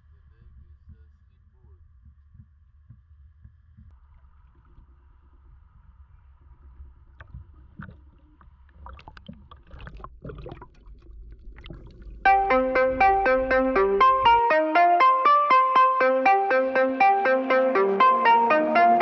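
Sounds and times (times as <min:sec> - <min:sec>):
boat low rumble: 0:00.0 - 0:15.2
water sloshing and gurgling: 0:03.9 - 0:12.3
water splashes and clicks: 0:07.1 - 0:12.2
piano-like music: 0:12.2 - 0:19.0.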